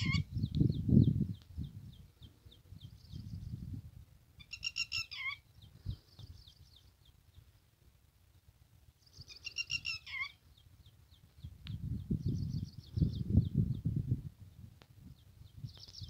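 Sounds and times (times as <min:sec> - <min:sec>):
lapwing shrill calls: 0:00.0 - 0:00.3, 0:04.4 - 0:05.4, 0:09.1 - 0:10.4.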